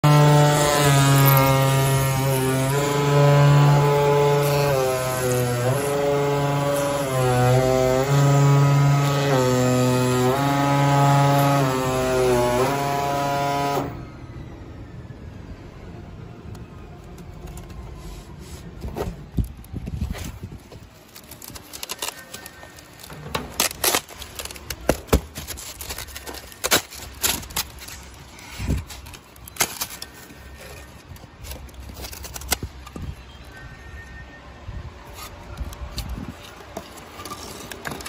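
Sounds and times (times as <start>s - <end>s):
foam insulation being pulled apart: 0.0s - 13.9s, 18.0s - 33.0s.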